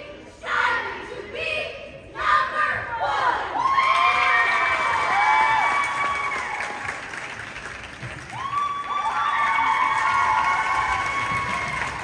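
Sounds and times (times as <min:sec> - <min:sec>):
crowd cheering and applauding: 0:03.7 - 0:12.0.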